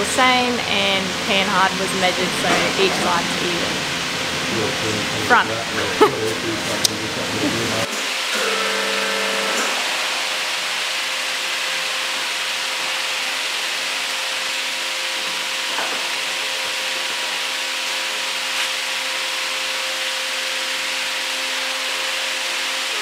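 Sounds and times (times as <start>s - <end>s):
faint steady hum: 0.0s - 13.5s.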